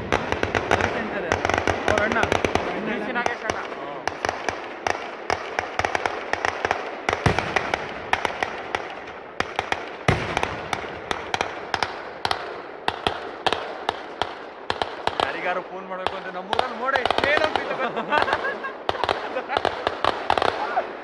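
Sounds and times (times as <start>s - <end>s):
firecrackers banging and popping: 0.0s - 21.0s
heavy firework booms: 0.0s - 21.0s.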